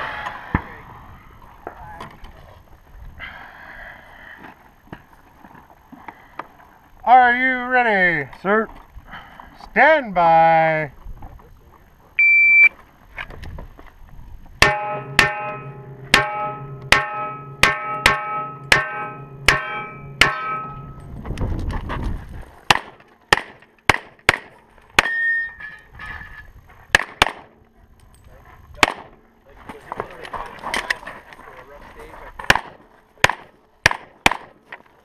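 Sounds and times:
pistol shots: 0:22.7 - 0:25.2, 0:26.9 - 0:27.6, 0:28.8 - 0:29.2, 0:32.5 - 0:34.6.

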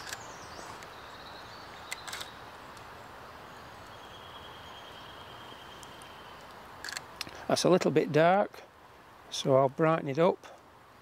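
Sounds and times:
faint outdoor hiss: 0:00.0 - 0:11.0
camera shutter clicks: 0:01.9 - 0:02.3.

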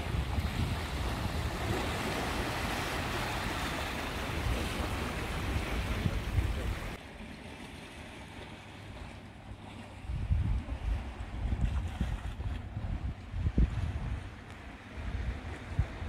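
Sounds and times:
wind buffeting microphone: 0:00.0 - 0:07.0, 0:10.0 - 0:16.0
surf washing over rocks: 0:00.0 - 0:07.1.

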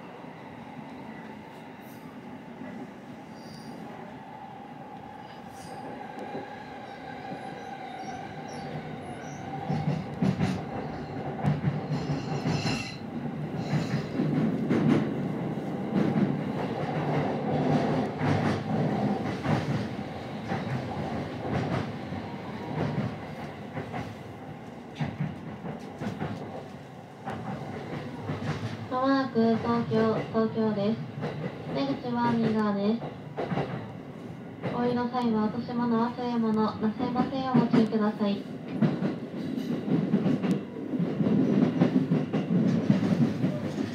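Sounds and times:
high train whine: 0:00.0 - 0:43.9
train rolling rumble: 0:05.2 - 0:43.9.

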